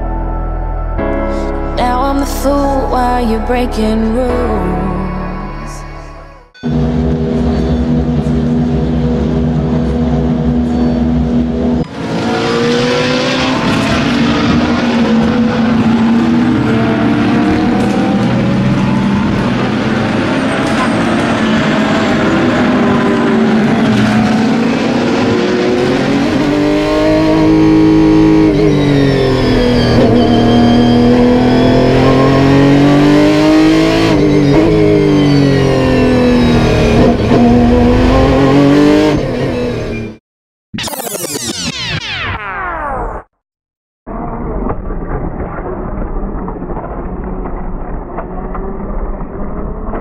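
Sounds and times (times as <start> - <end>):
racing car engine revving: 6.7 - 40.2.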